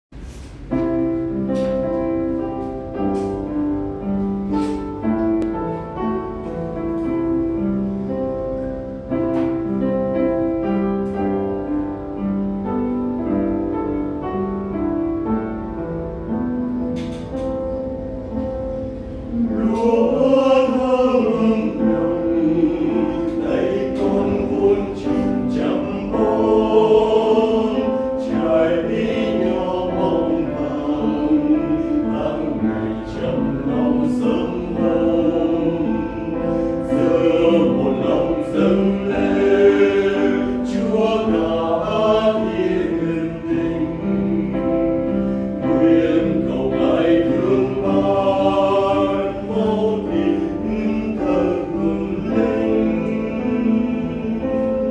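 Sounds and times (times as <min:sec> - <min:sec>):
piano playing a hymn: 0:00.1 - 0:54.9
choir singing: 0:18.6 - 0:54.9.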